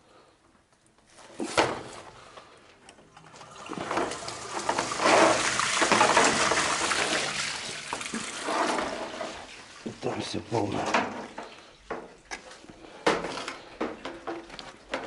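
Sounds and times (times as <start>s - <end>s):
water gurgling through pipe: 3.2s - 10.1s.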